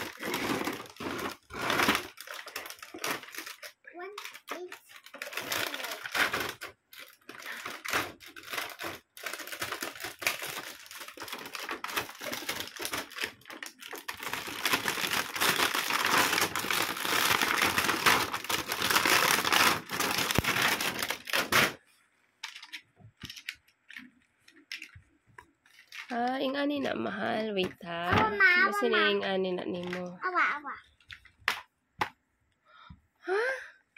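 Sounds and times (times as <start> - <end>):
plastic bag crinkling: 0.0 - 21.8, 22.4 - 26.6
plastic toy pieces clicking: 22.4 - 25.0.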